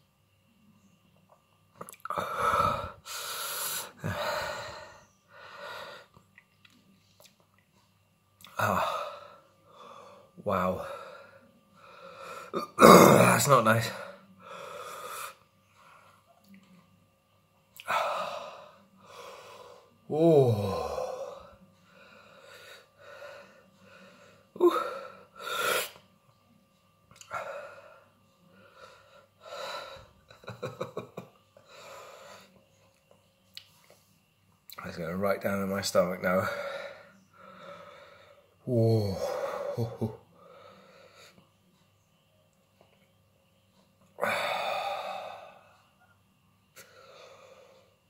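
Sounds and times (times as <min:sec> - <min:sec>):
man breathing hard: 0:02.1 - 0:06.2, 0:44.2 - 0:45.8, 0:46.8 - 0:48.0.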